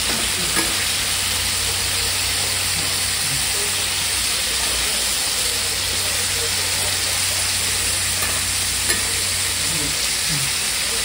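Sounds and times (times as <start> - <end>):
metal spatula on griddle: 0.0 - 1.1, 5.8 - 9.7
meat sizzling on a griddle: 0.0 - 11.0.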